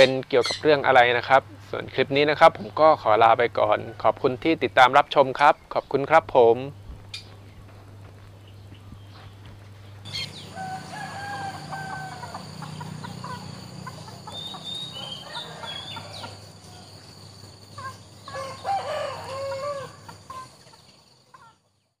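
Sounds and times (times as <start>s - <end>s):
steady low hum: 1.4s - 18.7s
rooster crowing: 10.1s - 20.5s
chickens clucking: 10.1s - 22.0s.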